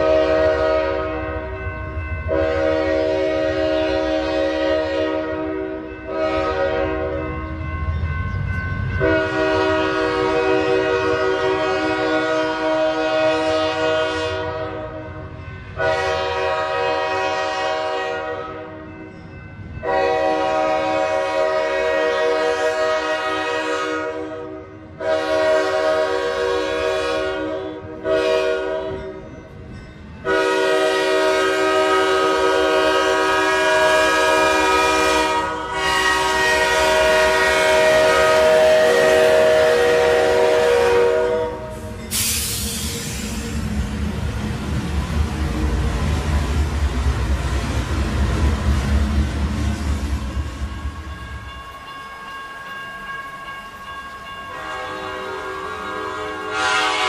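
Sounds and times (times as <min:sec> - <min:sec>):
locomotive air horn blasts: 0:00.0 - 0:01.4, 0:02.3 - 0:07.3, 0:09.0 - 0:15.2, 0:15.8 - 0:18.8, 0:19.8 - 0:29.2, 0:30.2 - 0:42.7, 0:54.5 - 0:57.0
low train rumble: 0:00.0 - 0:57.0.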